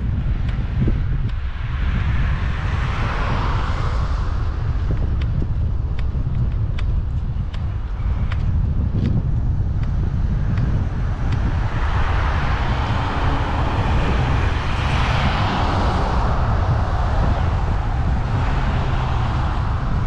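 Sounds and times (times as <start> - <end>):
wind rumbling on microphone: 0.0 - 20.0
car passing: 10.8 - 20.0.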